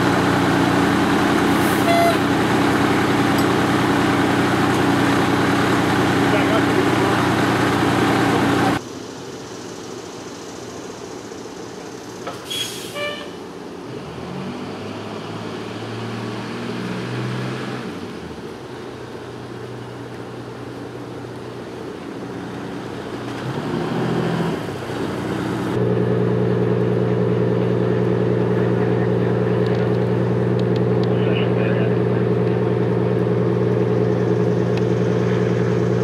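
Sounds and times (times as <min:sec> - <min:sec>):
heavy vehicle engines idling: 0:00.0 - 0:13.9, 0:17.8 - 0:23.8, 0:24.4 - 0:36.0
brief high squeal: 0:01.6 - 0:02.2, 0:12.4 - 0:13.4.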